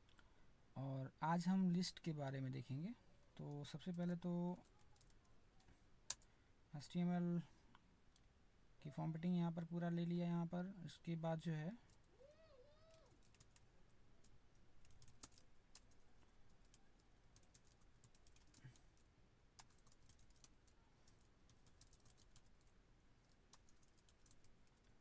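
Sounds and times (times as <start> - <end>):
keyboard typing: 3.5 - 5.2, 12.9 - 25.0.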